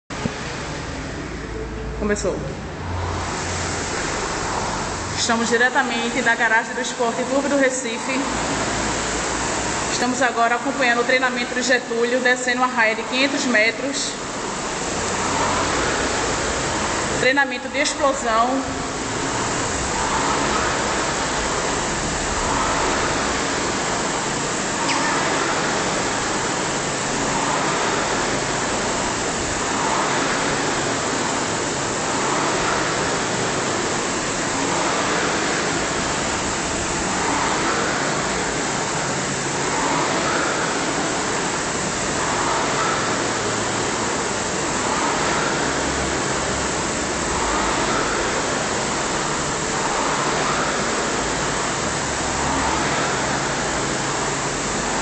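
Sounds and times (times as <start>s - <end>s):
rowing machine flywheel whooshing: 0.1s - 55.0s.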